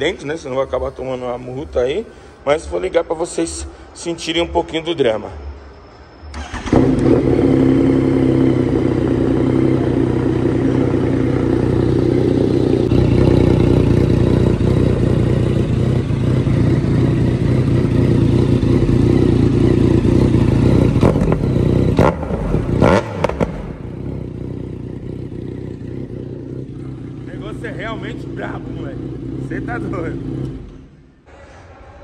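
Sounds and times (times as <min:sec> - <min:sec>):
motorcycle engine idling: 0:06.4 - 0:31.3.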